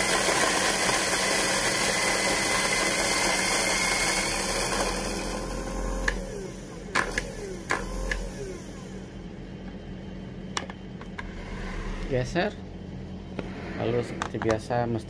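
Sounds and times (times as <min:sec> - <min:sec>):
coffee grinder grinding: 0:00.0 - 0:08.6, 0:11.2 - 0:12.2.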